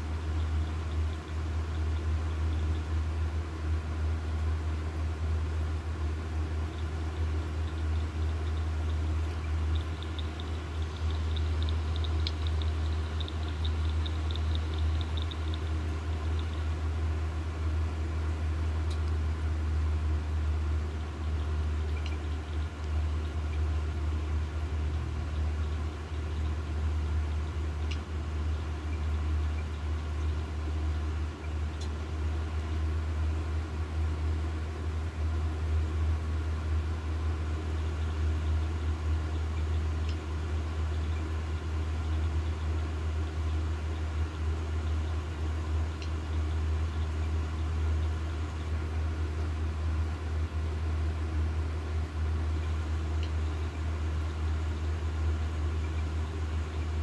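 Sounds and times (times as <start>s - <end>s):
low mechanical hum: 0.0s - 57.0s
quick light ticks: 6.8s - 16.7s, 21.9s - 23.6s, 46.0s - 46.2s.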